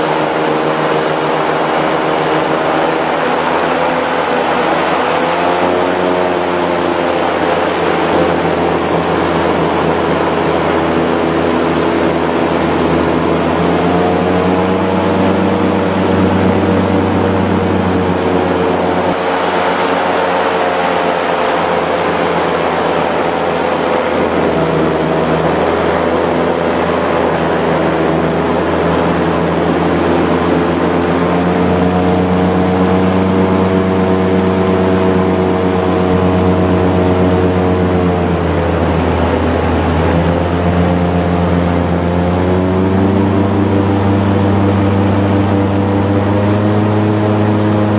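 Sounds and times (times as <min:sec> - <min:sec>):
airboat engine and propeller: 0:00.0 - 0:47.9
rushing air and water: 0:00.0 - 0:47.9.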